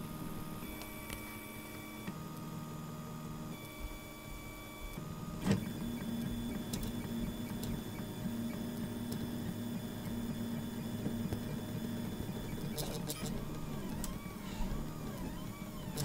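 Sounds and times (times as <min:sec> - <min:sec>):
stepper motors whining: 0:10.3 - 0:16.0.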